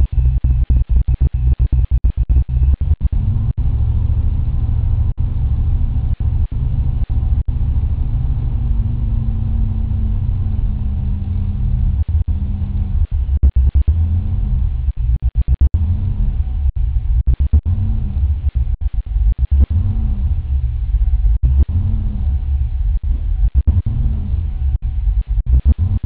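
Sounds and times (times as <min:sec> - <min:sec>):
car engine idling: 0:02.3 - 0:26.0.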